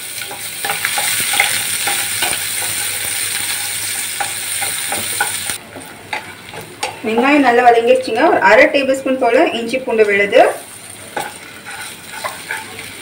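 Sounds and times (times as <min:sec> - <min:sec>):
shallots sizzling in hot oil: 0:00.0 - 0:13.0
wooden spatula scraping a pan: 0:11.1 - 0:13.0.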